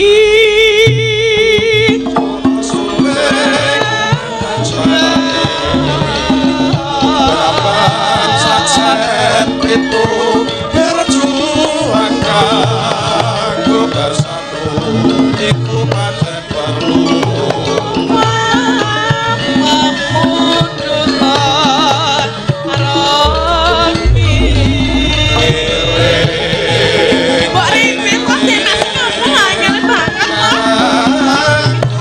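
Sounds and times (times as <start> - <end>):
woman singing with vibrato: 3.5 - 9.3
gamelan playing: 5.3 - 7.5.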